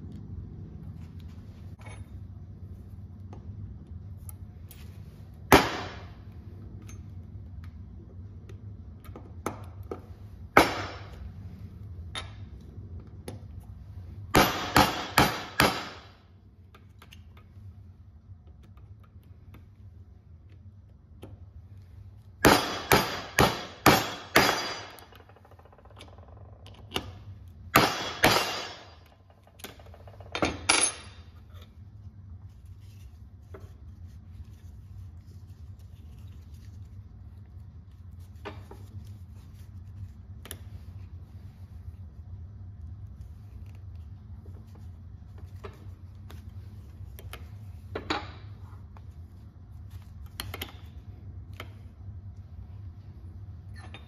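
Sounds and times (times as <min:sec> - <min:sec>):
hammer striking metal rivet setter: 0:22.4 - 0:25.2, 0:27.7 - 0:29.0.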